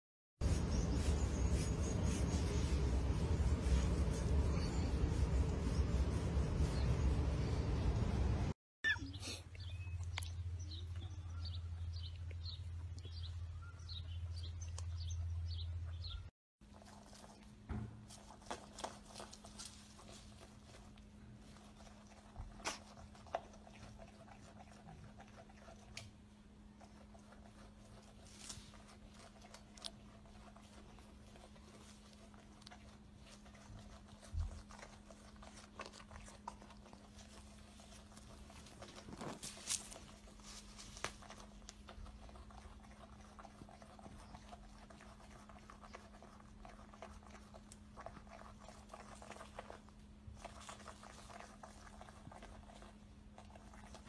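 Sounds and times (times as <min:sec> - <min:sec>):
animal chewing grass: 0:00.4 - 0:08.0, 0:16.6 - 0:54.0
low hum: 0:00.4 - 0:08.6.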